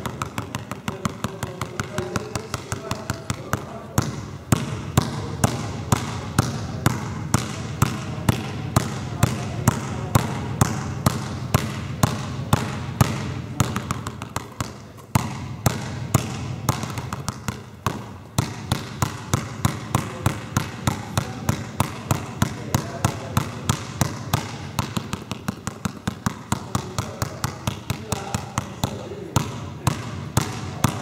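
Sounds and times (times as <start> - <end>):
basketball bouncing on hall floor: 0.0 - 31.0.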